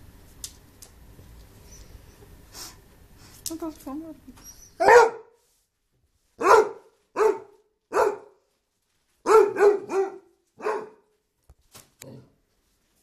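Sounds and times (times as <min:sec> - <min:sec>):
dog barking: 0:04.8 - 0:05.4, 0:06.4 - 0:08.4, 0:09.2 - 0:11.1.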